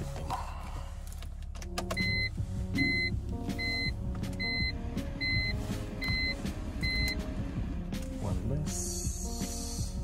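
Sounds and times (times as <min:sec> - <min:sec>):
car warning chime beeping: 0:01.9 - 0:07.3.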